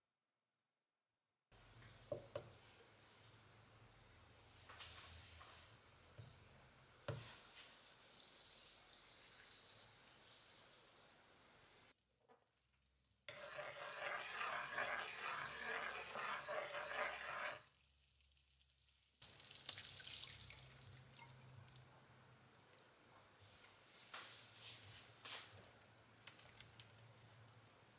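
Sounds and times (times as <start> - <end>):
butter sizzling in a pan: 7.8 - 17.7
eggs poured into sizzling butter: 12.6 - 21.5.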